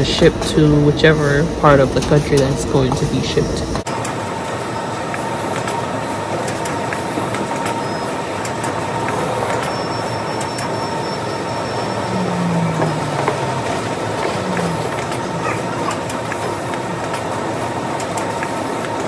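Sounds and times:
constant machine whine: 0.0 - 19.0
machinery and conveyor belts din: 0.0 - 19.0
low hum: 9.0 - 18.3.

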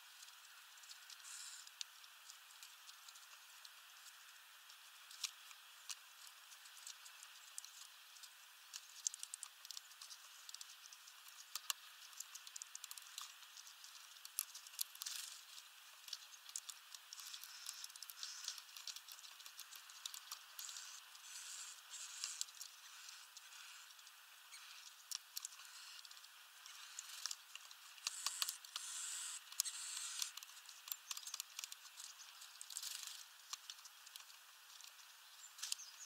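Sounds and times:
beaks tapping on seeds: 8.7 - 35.0.

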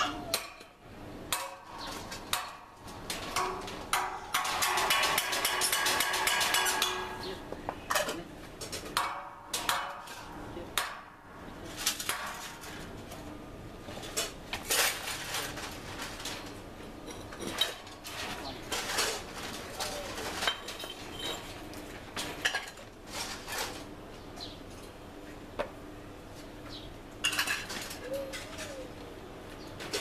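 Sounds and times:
metallic clinks on rebar: 1.3 - 11.1.

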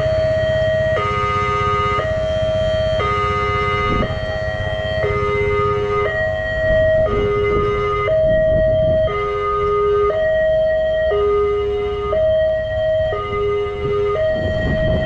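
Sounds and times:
two-tone level crossing alarm: 0.0 - 15.0
low rumble: 3.9 - 10.6, 12.2 - 15.0.

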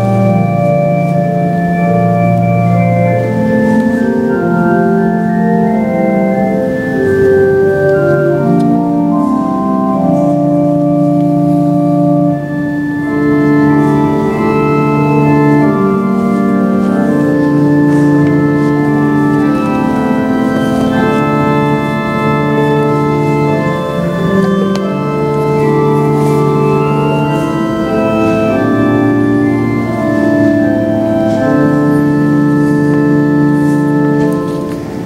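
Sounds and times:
organ chords: 0.0 - 35.0.

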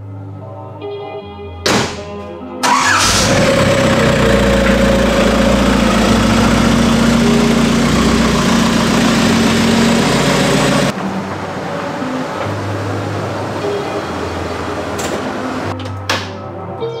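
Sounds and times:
truck engine idling: 2.6 - 10.9.

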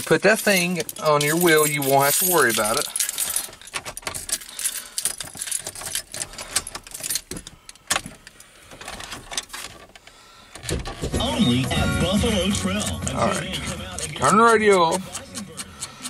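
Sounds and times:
keys jingling: 0.0 - 9.9.

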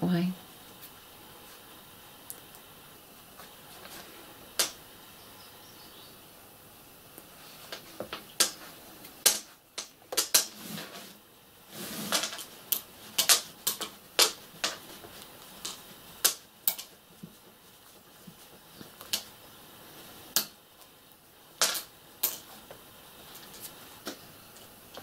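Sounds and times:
fabric and thread rustling: 7.3 - 20.3.

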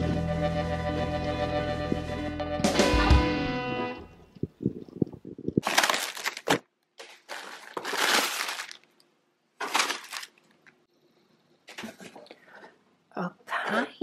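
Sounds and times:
plastic packaging crinkling: 5.4 - 10.8.

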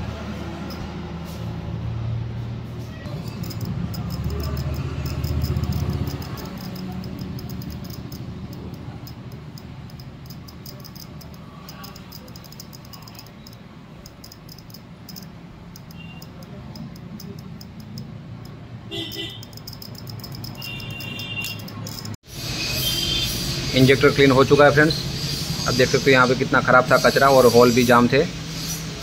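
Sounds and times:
fuel injector clicking rapidly: 3.1 - 22.2.

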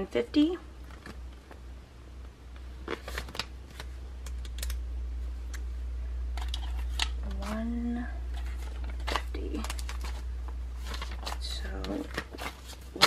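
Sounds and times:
steady low hum: 0.0 - 13.0
paper rustling: 2.8 - 4.0, 8.3 - 13.0.

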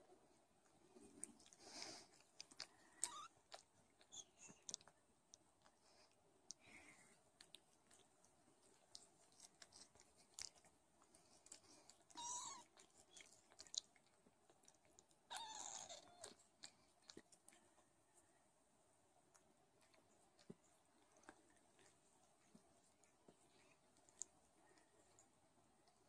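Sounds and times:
kittens mewing: 3.0 - 3.4, 15.3 - 16.4.

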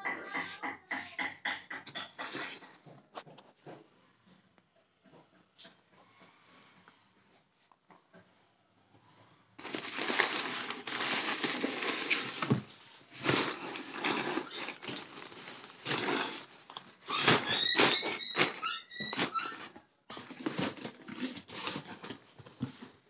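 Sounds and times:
packing paper rustling and crinkling: 9.6 - 23.0.

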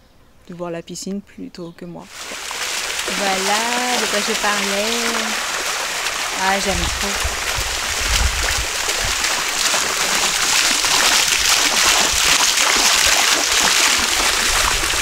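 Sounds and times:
fountain water splashing: 2.1 - 15.0.

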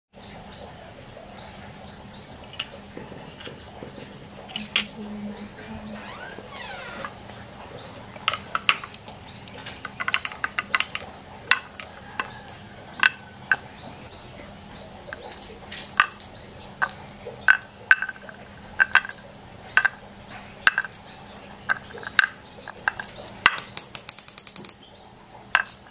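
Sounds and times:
bird chirping: 0.2 - 25.9
faint steady hum: 0.2 - 25.9
small balls clicking on wood: 6.3 - 14.0, 14.9 - 25.9.

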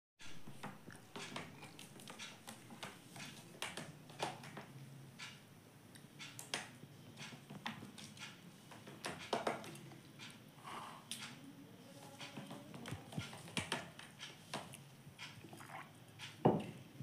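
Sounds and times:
parrot tapping and clicking: 6.2 - 10.4.

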